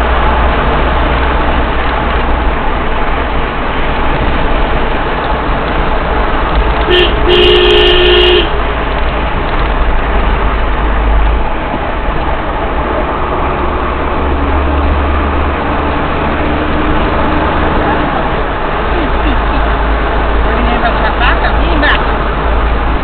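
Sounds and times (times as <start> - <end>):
car engine and road noise: 0.0 - 23.0
two-note car horn: 6.9 - 8.6.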